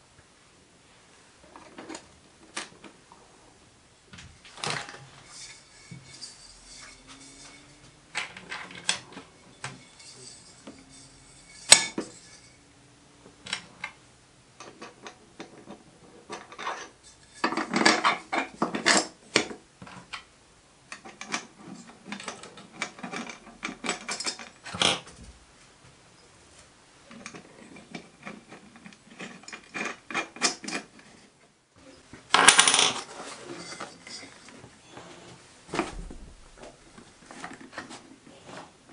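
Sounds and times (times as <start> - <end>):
metal hardware clinking on workbench: 4.5 - 12.6.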